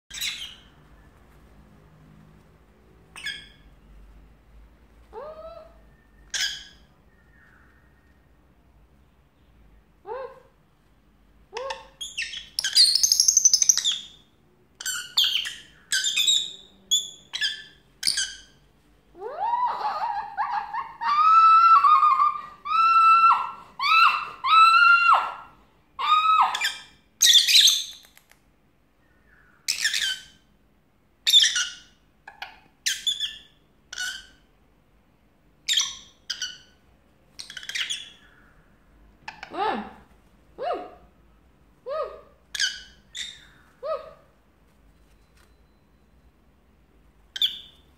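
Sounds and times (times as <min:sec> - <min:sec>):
lovebird chirps and squawks: 0:00.1 - 0:00.8, 0:03.1 - 0:03.6, 0:05.5 - 0:07.6, 0:11.6 - 0:18.6, 0:26.4 - 0:28.1, 0:29.6 - 0:30.5, 0:31.2 - 0:34.5, 0:35.6 - 0:36.8, 0:37.4 - 0:38.6, 0:39.2 - 0:39.6, 0:42.2 - 0:44.2, 0:47.3 - 0:47.8
lower pitched bird calls: 0:05.5 - 0:08.5, 0:29.0 - 0:30.5, 0:37.4 - 0:39.6.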